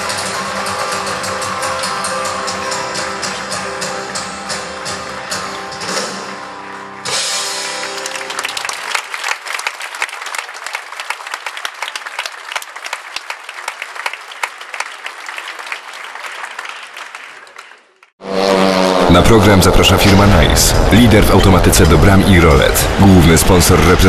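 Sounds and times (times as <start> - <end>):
live band ending a song: 0.0 - 8.6
audience applauding: 0.0 - 18.2.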